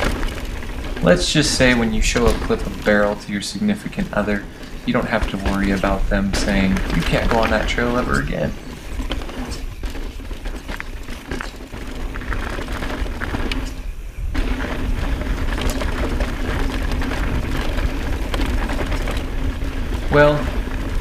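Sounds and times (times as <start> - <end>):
bike clicking and rattling: 0.0 - 21.0
steady low hum: 0.0 - 21.0
tyres crunching over gravel: 0.0 - 21.0
wind rumble on microphone: 0.0 - 21.0.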